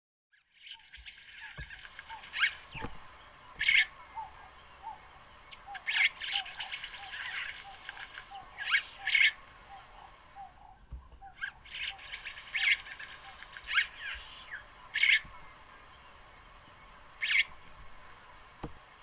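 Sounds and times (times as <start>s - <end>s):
squeaky bird notes: 0.4s - 4.3s, 5.5s - 9.4s, 10.4s - 15.3s
bird buzzy song phrases: 0.4s - 19.0s.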